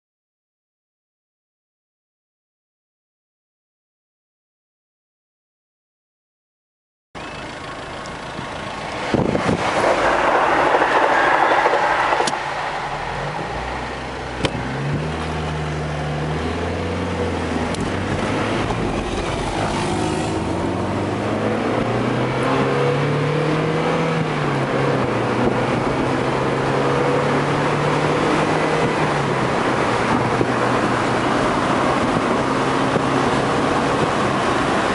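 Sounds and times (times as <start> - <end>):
car engine accelerating: 7.2 - 34.9
wind and road rush: 7.4 - 34.9
loud rushing noise: 8.8 - 16.4, 17.5 - 24.3.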